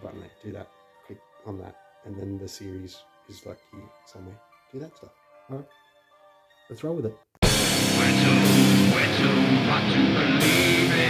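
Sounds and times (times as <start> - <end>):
loud rock music: 7.4 - 11.0.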